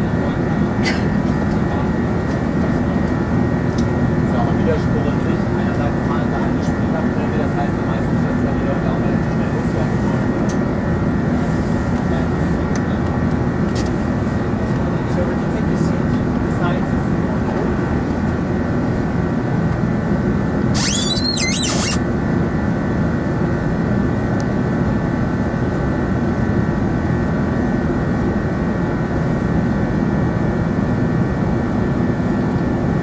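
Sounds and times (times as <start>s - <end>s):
jet engine drone in cabin: 0.0s - 33.0s
high warbling sound: 20.8s - 22.0s.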